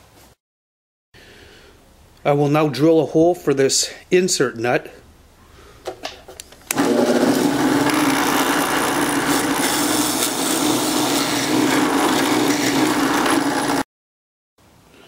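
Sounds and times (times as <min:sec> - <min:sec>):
drill press boring into plywood: 0:06.7 - 0:13.8.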